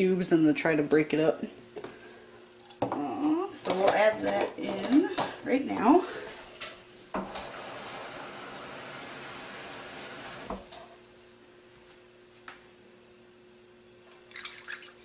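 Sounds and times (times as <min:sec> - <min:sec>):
tap water filling a cup: 0:14.1 - 0:15.0.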